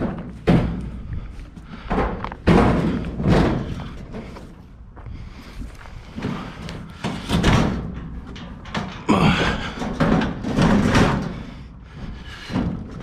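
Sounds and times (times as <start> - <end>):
sheet metal bangs and clanks: 1.8 - 4.4, 6.1 - 11.6.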